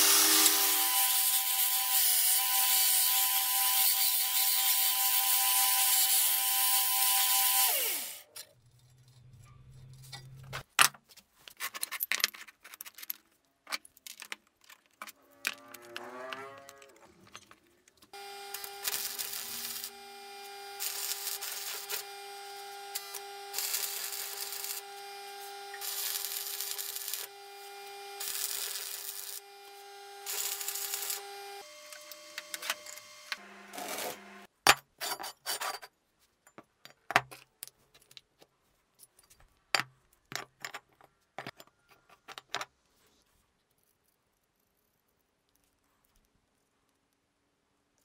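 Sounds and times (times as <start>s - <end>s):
welder hum: 0.0s - 8.3s, 18.1s - 34.5s
arc welder crackling: 18.1s - 34.5s.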